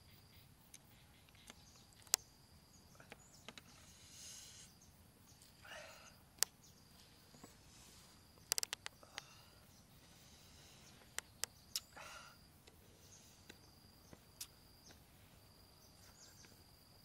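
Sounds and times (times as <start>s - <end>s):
high insect chirr: 0.0s - 17.0s
fingers clicking and crackling lime: 8.4s - 9.3s.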